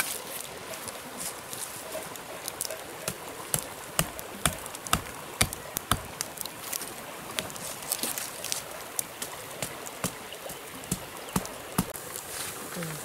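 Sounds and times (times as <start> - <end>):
hatchet knocking wooden stake: 3.1 - 6.2, 9.6 - 11.9.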